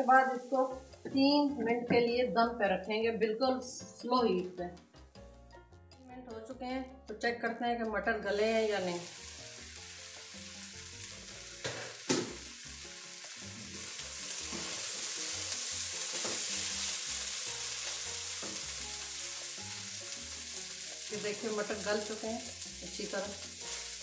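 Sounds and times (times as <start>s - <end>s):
food sizzling in a wok: 0.0s - 1.4s, 8.3s - 24.0s.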